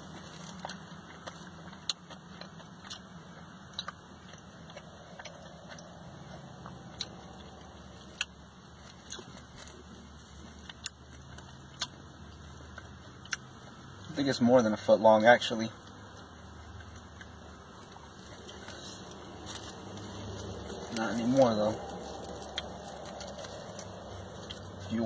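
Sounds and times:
low hum inside car: 0.0s - 25.0s
plastic wrap crinkling: 18.1s - 25.0s.

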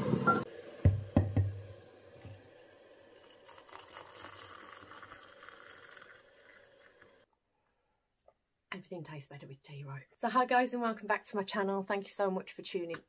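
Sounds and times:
sharp knocks: 0.8s - 1.6s
water pouring into a mug: 1.7s - 7.3s.

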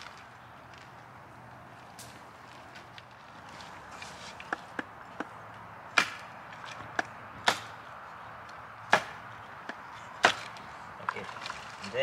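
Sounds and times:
sharp chopping strikes: 4.4s - 6.3s, 6.9s - 7.8s, 8.9s - 10.6s.

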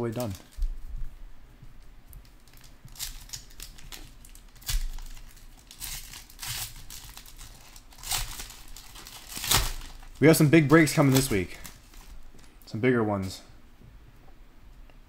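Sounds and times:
foil wrapper crinkling: 0.0s - 0.7s, 2.2s - 12.6s.

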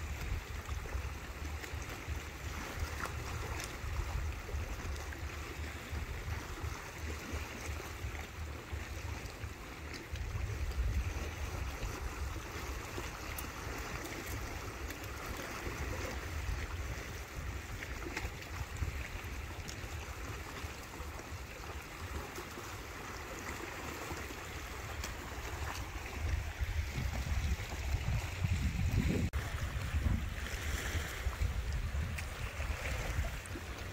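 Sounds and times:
small waves washing over rocks: 0.0s - 33.9s
wind buffeting microphone: 2.1s - 14.6s, 25.3s - 33.9s.

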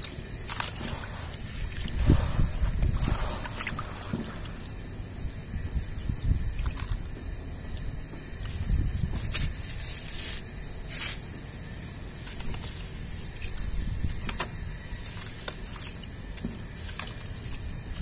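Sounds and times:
water sloshing and dripping: 0.0s - 9.8s
wet sand crumbling crackles: 0.0s - 18.0s.

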